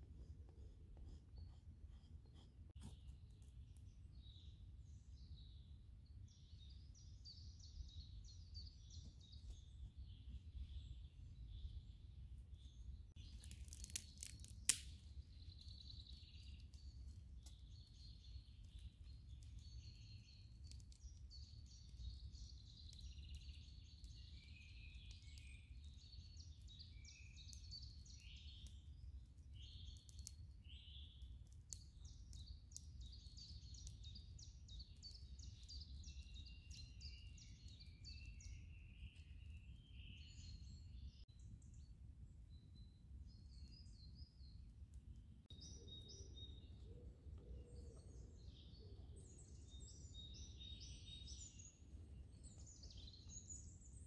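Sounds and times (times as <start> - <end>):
small birds chirping: 0.0 - 54.0.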